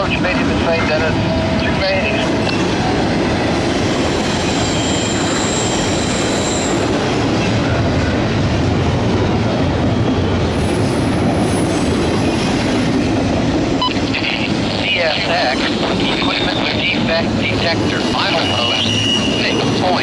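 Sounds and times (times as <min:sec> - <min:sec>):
train wheels rumbling on rail: 0:00.0 - 0:20.0
high wheel squeal: 0:04.2 - 0:06.9, 0:18.1 - 0:20.0.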